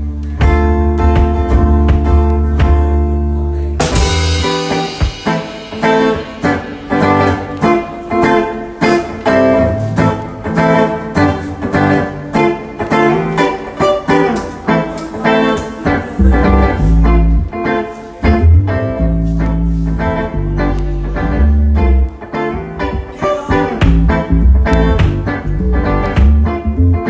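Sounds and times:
electric guitar chords: 0:00.0 - 0:27.0.

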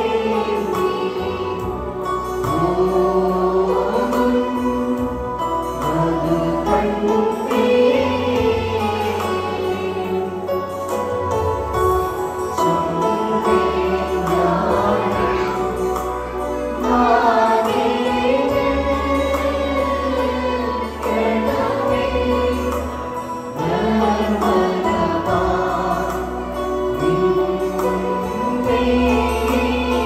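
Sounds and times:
choir singing a hymn: 0:00.0 - 0:30.0.

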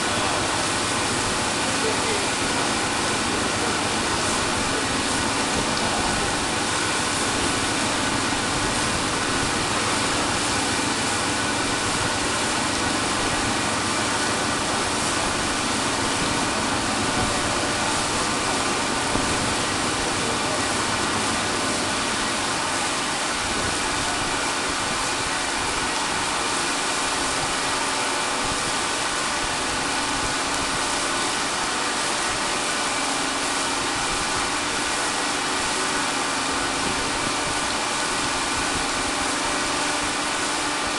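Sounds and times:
machinery drone: 0:00.0 - 0:27.8.

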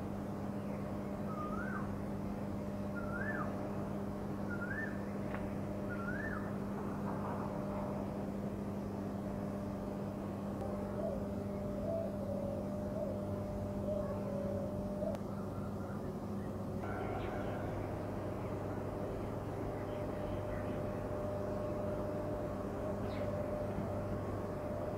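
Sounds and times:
electric machinery humming: 0:00.0 - 0:24.9
bird chirping: 0:22.8 - 0:24.0.

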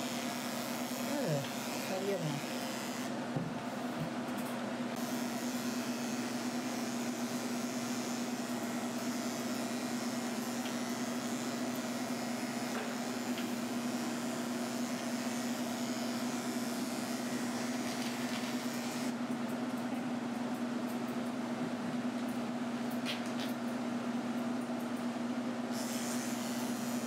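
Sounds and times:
electric clippers humming: 0:00.0 - 0:19.2, 0:25.7 - 0:27.0.

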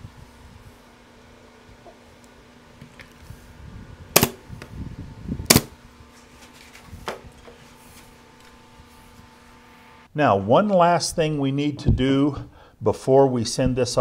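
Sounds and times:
pin nailer shots: 0:04.1 - 0:04.4, 0:05.5 - 0:05.8.

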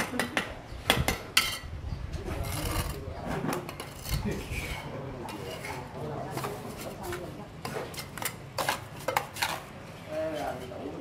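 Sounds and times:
trowel scraping wet mortar: 0:02.3 - 0:09.7.

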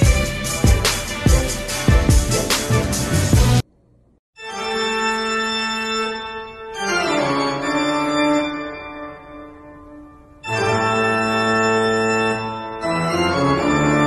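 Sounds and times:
organ music: 0:00.0 - 0:03.6, 0:04.4 - 0:14.0.

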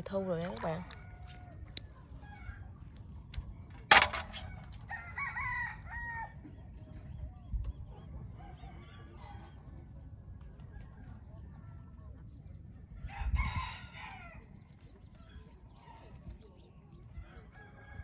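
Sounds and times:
rooster crowing: 0:04.9 - 0:06.4.

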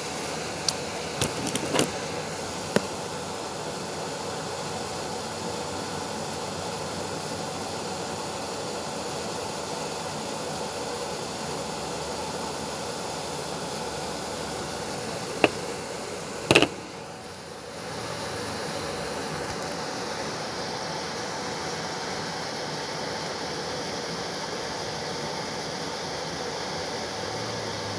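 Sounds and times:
sharp click: 0:15.4 - 0:15.6, 0:16.5 - 0:16.8
short knock: 0:16.5 - 0:16.8.

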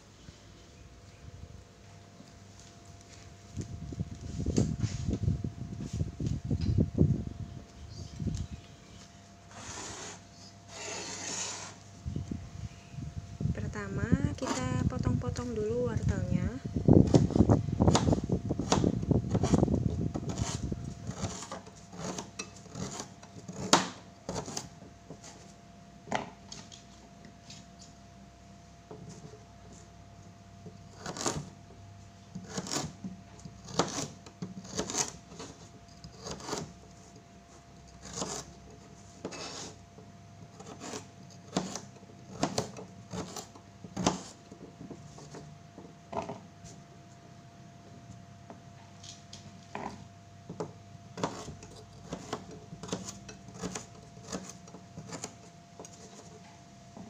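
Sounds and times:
knife chopping on cutting board: 0:40.6 - 0:44.4, 0:51.2 - 0:55.3.

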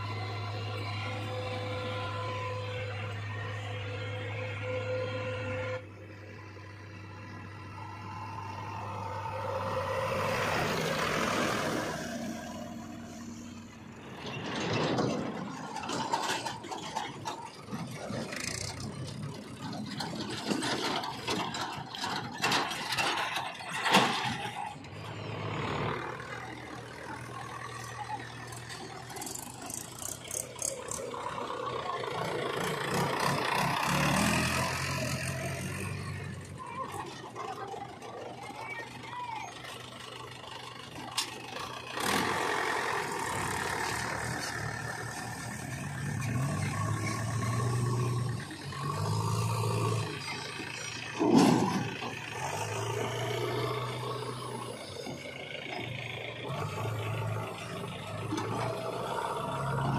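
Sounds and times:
diesel engine running: 0:00.0 - 0:59.9
steel trolleys clanking and rattling: 0:14.0 - 0:59.9.

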